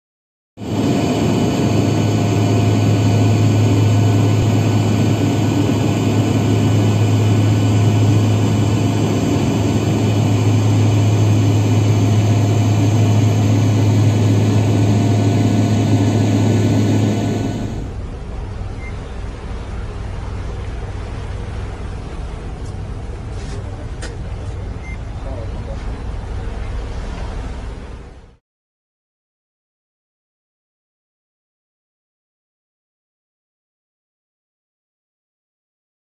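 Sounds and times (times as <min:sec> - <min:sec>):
propeller aircraft engines droning: 0:00.6 - 0:28.3
steady whining tones: 0:00.6 - 0:28.3.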